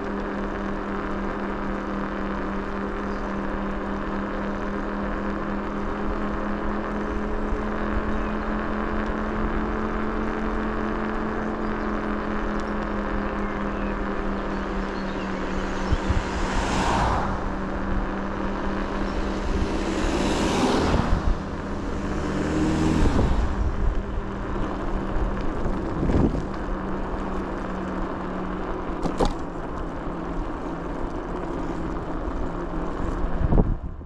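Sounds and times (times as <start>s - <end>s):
vehicle engine running: 0.0s - 34.0s
rushing noise: 15.2s - 26.5s.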